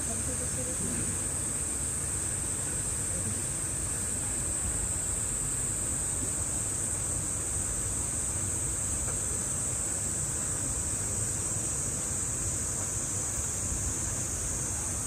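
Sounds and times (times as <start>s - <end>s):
cicadas droning: 0.0s - 15.0s.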